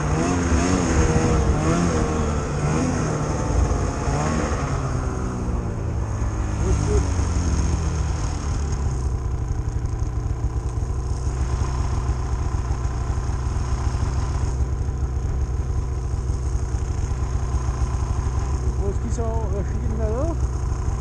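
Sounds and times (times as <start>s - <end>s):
snowmobile engine idling: 0.0s - 21.0s.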